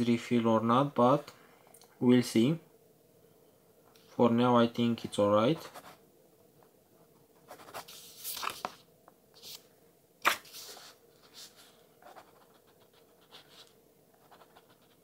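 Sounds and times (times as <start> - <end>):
pen scratching on paper: 10.6 - 15.0.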